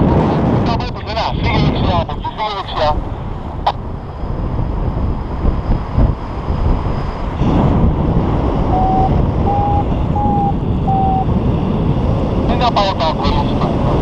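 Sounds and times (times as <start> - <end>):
wind buffeting microphone: 0.0 - 14.0
variometer short beeps: 8.7 - 11.3.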